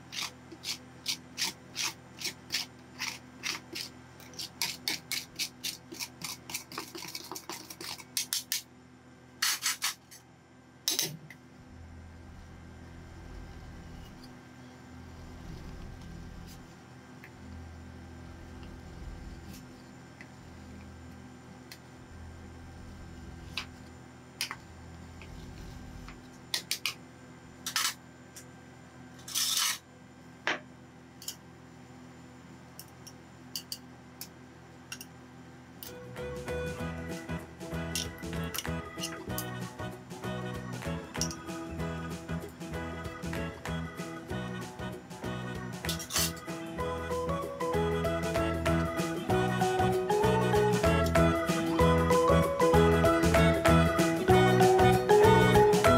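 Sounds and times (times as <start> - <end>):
faint steady hum: 0.0 - 55.9
metal spatulas scraping steel: 29.2 - 29.8, 45.9 - 46.4.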